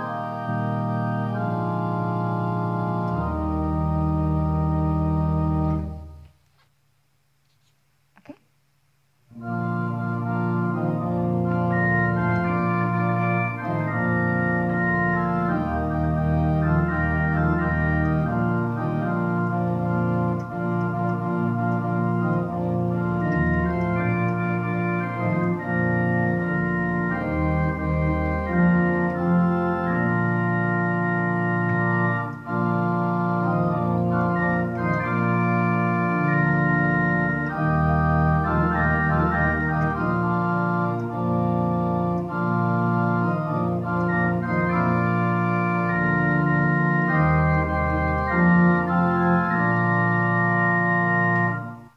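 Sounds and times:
church organ playing hymn: 0.0 - 6.3, 9.3 - 51.9.

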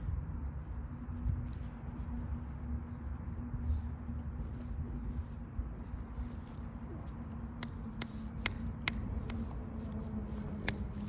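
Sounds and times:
steady low hum: 0.0 - 11.0
dogs making sharp clicks: 7.0 - 9.7, 10.4 - 11.0.

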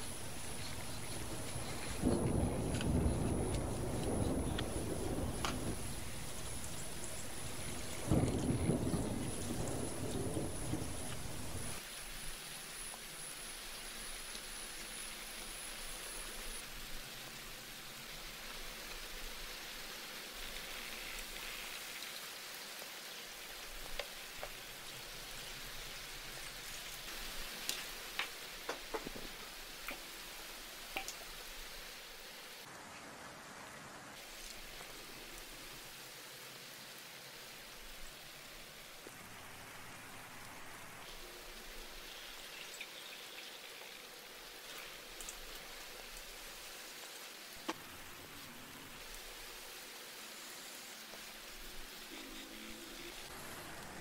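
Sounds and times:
water splashing and dripping: 0.0 - 11.8, 26.2 - 31.7
steady low hiss: 0.0 - 54.0.

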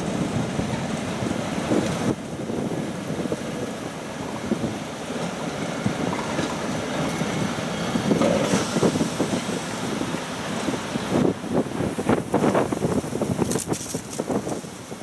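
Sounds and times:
diesel locomotive low rumble: 0.0 - 15.0.

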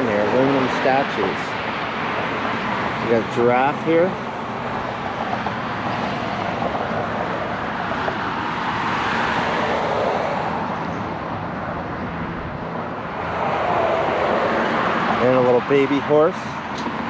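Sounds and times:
passing vehicle: 0.0 - 17.0.

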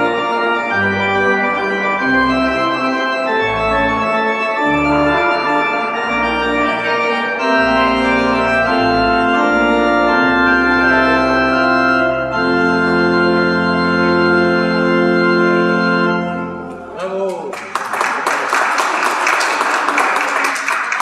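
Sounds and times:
deep pedal bass notes: 0.0 - 16.6
pipe organ chords: 0.0 - 16.9.

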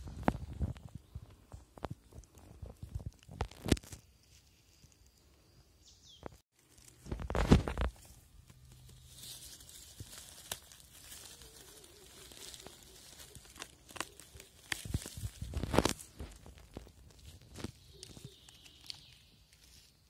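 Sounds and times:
dry leaves rustling and crackling: 6.5 - 20.0
leaves crunching: 6.5 - 20.0.

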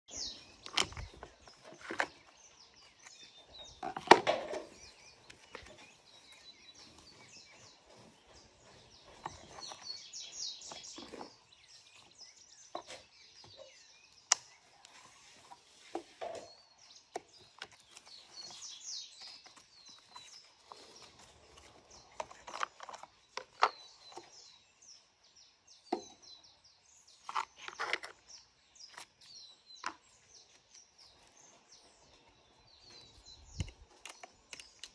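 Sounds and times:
birds chirping: 0.1 - 34.9.

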